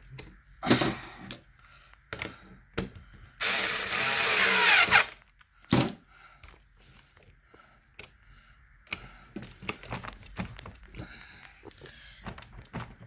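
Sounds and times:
cordless screwdriver running: 3.4 - 5.2
handling knocks and clicks: 8.9 - 13.0.

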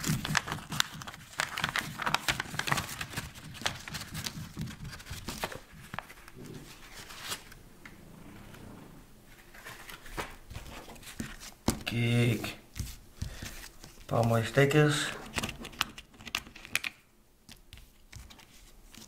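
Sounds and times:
paper rustling and crinkling: 0.0 - 7.6, 9.3 - 14.5.

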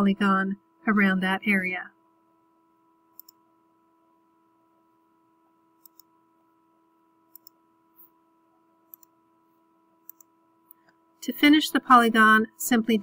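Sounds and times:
faint steady hum: 0.0 - 13.0
computer mouse clicks: 3.1 - 3.4, 5.8 - 6.1, 7.3 - 8.1, 8.9 - 9.2, 10.0 - 11.0.

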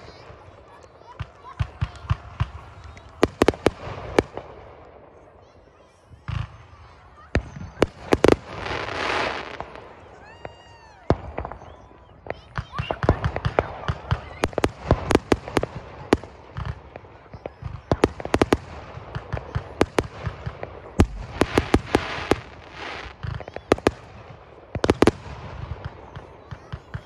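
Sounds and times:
fireworks bangs and pops: 0.0 - 27.0
fireworks hissing: 17.9 - 25.7.

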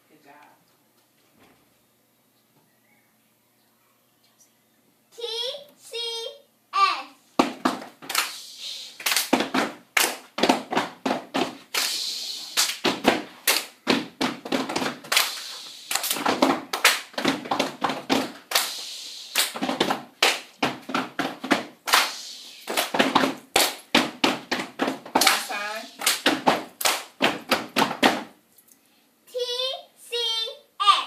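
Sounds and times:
hand claps: 7.4 - 8.4, 9.0 - 12.0, 12.6 - 28.3
stomps on floor: 12.8 - 15.0, 16.2 - 18.4, 19.6 - 21.7, 22.8 - 25.4.

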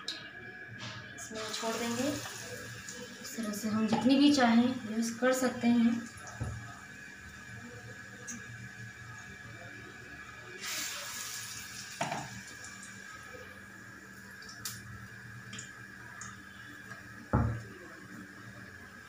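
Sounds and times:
leaves sizzling in hot oil: 1.3 - 4.4, 10.3 - 13.2.

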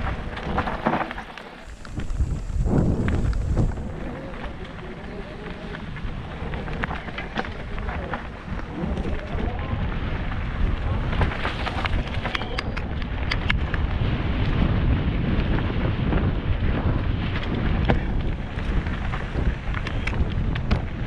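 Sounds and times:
tyres on dirt: 0.0 - 13.8
bike rattling over bumps: 0.0 - 21.0
wind rumbling on microphone: 0.0 - 21.0.

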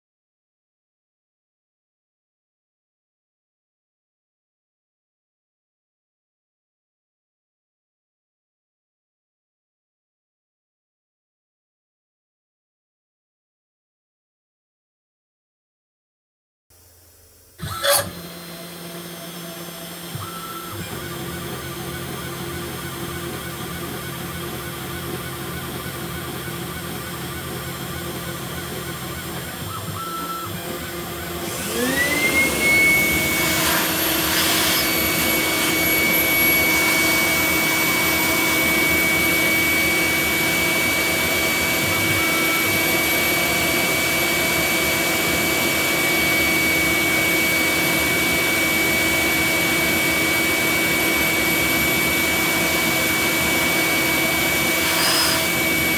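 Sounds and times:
router spindle humming: 17.4 - 55.9
shop vacuum whining: 17.5 - 55.9.

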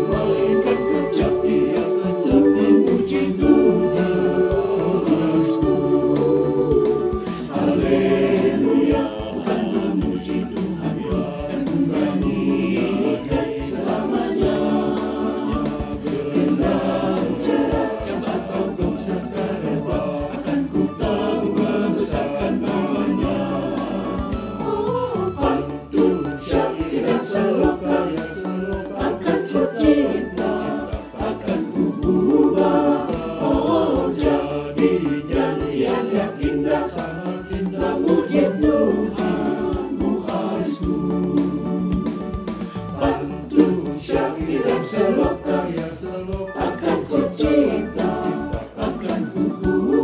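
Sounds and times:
choir singing a hymn: 0.0 - 50.0
instrumental accompaniment with beats: 0.0 - 50.0.

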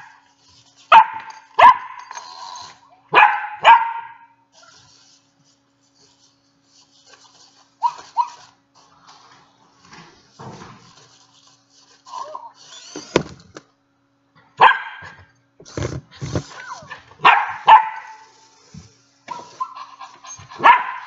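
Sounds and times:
dog barking: 0.9 - 2.0, 3.1 - 4.4, 14.6 - 15.2, 17.2 - 18.2, 20.6 - 21.0.

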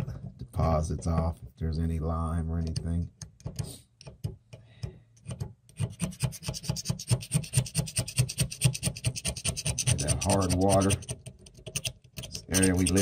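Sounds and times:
knife scraping metal faucet: 5.8 - 13.0.

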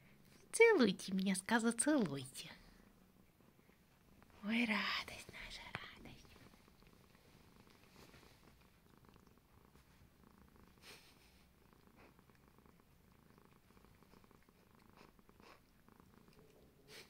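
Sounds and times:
cat purring: 0.0 - 17.0
soft brushing sounds: 3.3 - 8.8, 9.7 - 10.2.

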